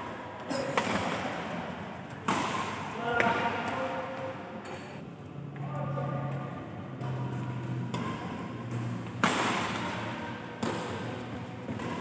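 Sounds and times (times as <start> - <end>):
rackets hitting shuttlecock: 0.5 - 4.4, 7.0 - 12.0.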